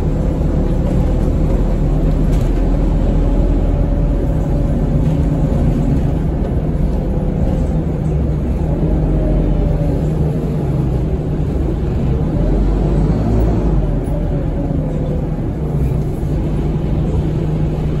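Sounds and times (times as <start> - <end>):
bus diesel engine drone: 0.0 - 18.0
faint engine whine: 0.0 - 18.0.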